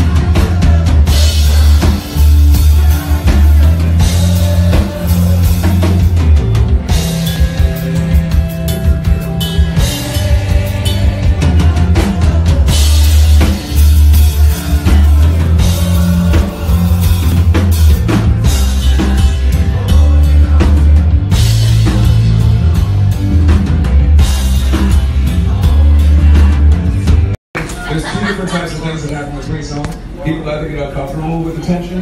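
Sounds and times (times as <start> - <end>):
live rock band playing: 0.0 - 28.4.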